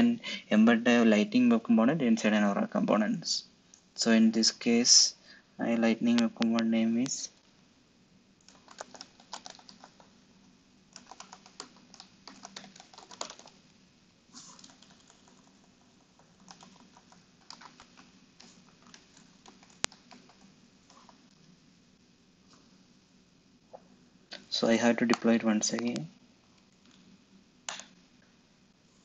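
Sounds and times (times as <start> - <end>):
computer keyboard typing: 8.4 - 10.1, 10.9 - 13.6, 14.4 - 21.2.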